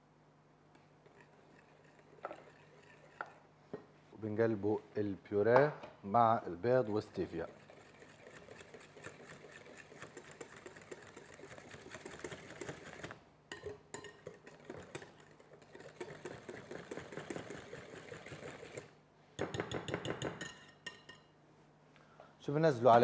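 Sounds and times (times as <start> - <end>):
batter beaten in mixing bowl: 1.0 - 3.4, 6.8 - 20.6.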